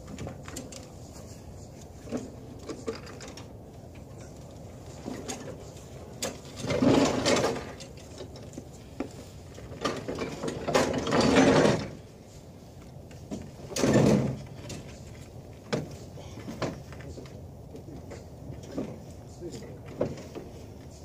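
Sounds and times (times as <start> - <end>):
mower rattling on wooden ramps: 2.0 - 12.3, 13.1 - 16.9.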